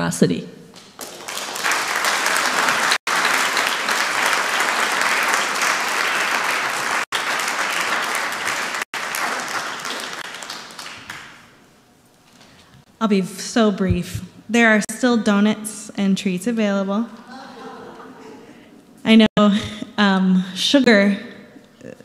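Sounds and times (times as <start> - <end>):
audience applauding: 0.9 - 11.5.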